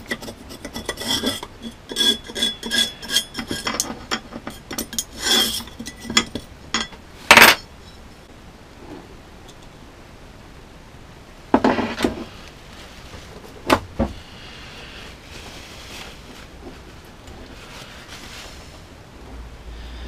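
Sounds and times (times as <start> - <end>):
metal tool scraping metal groove: 0.0 - 7.6.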